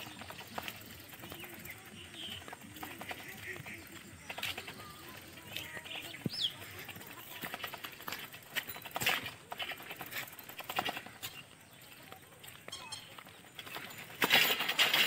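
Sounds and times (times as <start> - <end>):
bicycle rattling over dirt path: 0.0 - 15.0.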